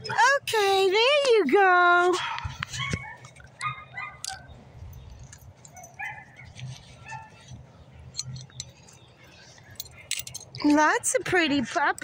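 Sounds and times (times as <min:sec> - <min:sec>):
dogs yipping and barking: 0:02.1 - 0:10.4.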